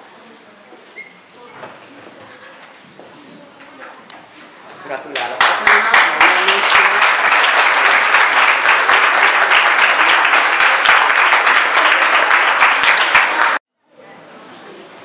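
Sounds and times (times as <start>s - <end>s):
audience applauding: 5.2s - 13.6s.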